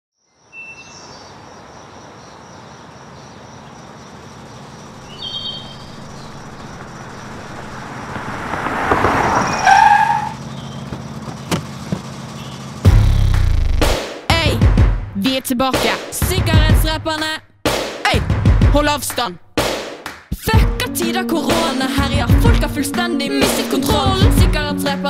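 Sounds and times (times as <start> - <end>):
car driving up: 4.0 - 14.0
short squeal: 9.4 - 10.8.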